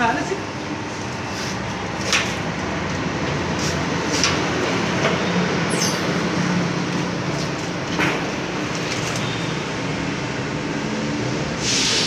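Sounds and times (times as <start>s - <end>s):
short high squeak: 5.7s - 6.1s.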